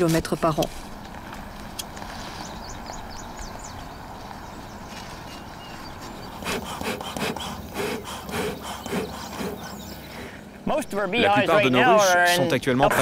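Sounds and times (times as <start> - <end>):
short rubbing strokes: 6.3 - 10.3.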